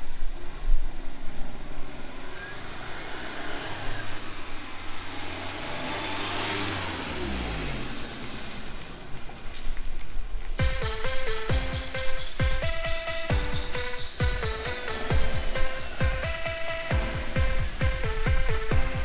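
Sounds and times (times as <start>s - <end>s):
car engine driving by: 0.2s - 10.2s.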